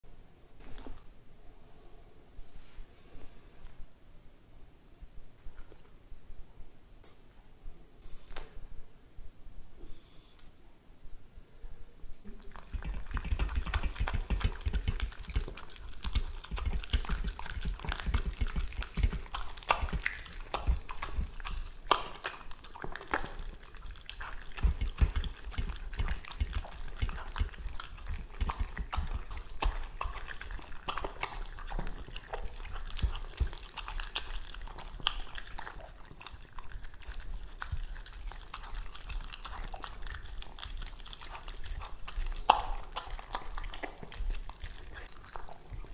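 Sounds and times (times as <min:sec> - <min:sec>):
dog chewing and gulping: 0:12.2 - 0:45.9.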